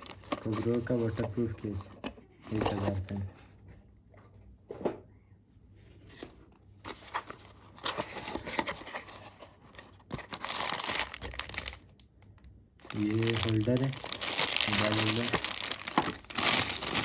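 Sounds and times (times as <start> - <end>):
plastic bag crinkling: 10.3 - 12.0, 12.8 - 17.0.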